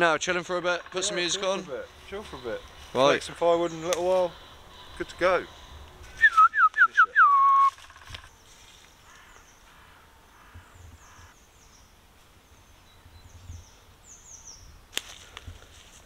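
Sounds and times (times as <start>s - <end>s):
small birds chirping: 0.2s - 15.0s
person whistling: 6.1s - 7.8s.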